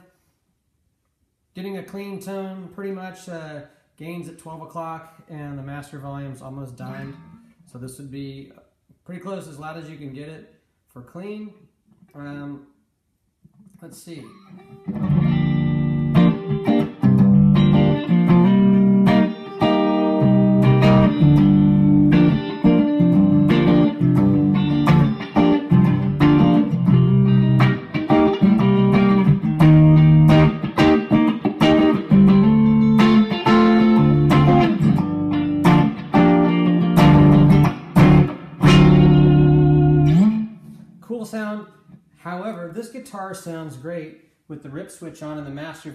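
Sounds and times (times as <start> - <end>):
clean electric guitar chords and notes: 14.4 - 41.0.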